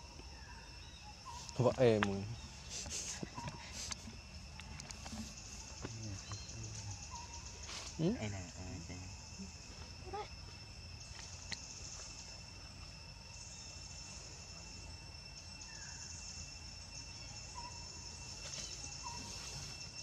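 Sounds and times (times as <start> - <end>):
insects buzzing: 0.0 - 20.0.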